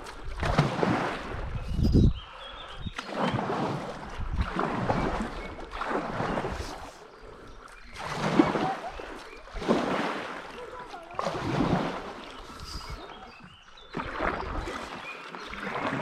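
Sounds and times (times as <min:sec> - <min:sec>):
paddle splashing in water: 0:00.0 - 0:01.7, 0:02.8 - 0:16.0.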